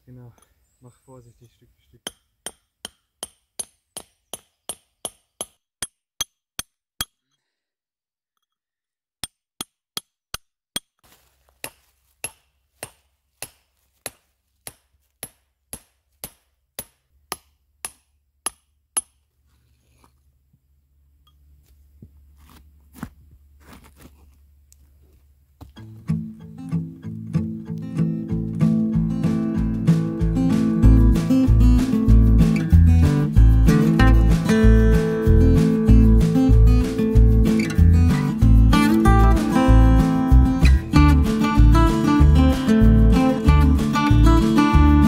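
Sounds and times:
hammer striking chisel on stone: 2.0s - 7.4s, 9.2s - 11.0s, 11.6s - 19.2s.

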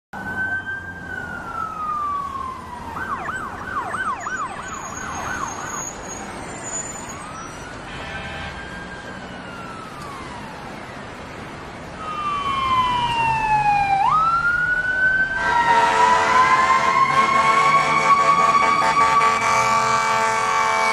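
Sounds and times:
siren yelping: 0.2s - 7.9s, 8.5s - 11.2s, 12.0s - 20.9s
siren wailing: 0.2s - 20.9s
multi-pitch horn rising: 15.3s - 20.9s.

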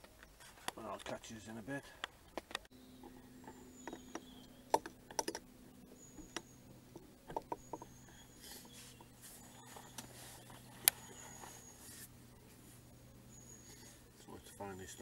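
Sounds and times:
faint steady hum: 0.0s - 15.0s
handling clicks and taps: 6.2s - 9.1s.

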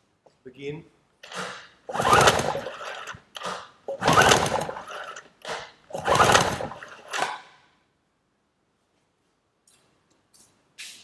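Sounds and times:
outboard motor pull-start whirring: 1.2s - 7.5s.

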